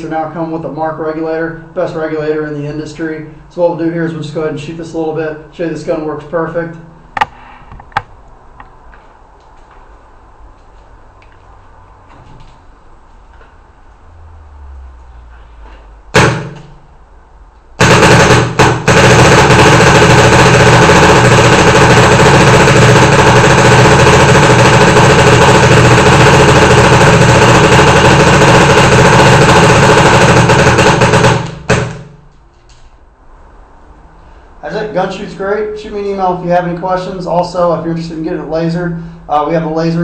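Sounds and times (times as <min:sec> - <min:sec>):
paintball marker rapid firing: 0:16.1 - 0:16.7, 0:17.8 - 0:32.2.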